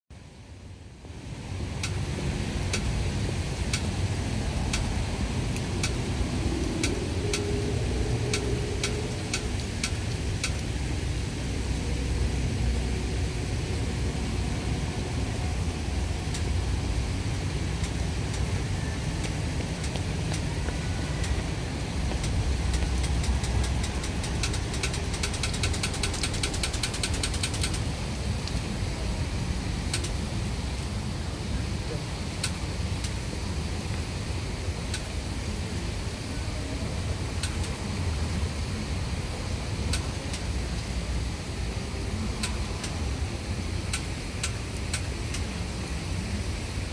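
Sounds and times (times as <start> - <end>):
low city rumble: 0.1 - 46.9
faint sharp ticks: 1.8 - 2.0, 4.6 - 4.9, 6.7 - 7.5, 8.3 - 10.7, 22.1 - 28.6, 29.9 - 30.2.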